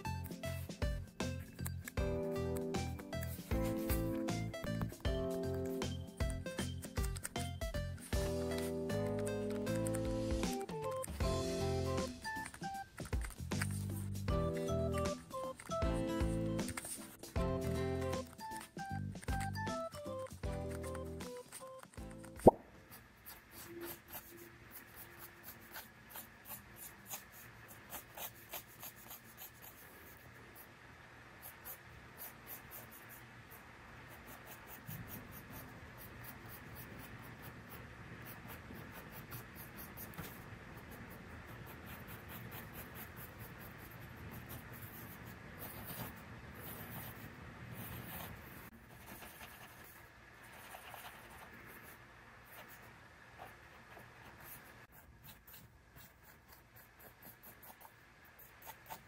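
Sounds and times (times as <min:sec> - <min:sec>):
pencil tapping on paper: 0:00.0 - 0:22.7
pencil scratching on paper: 0:00.0 - 0:30.8, 0:31.4 - 0:59.0.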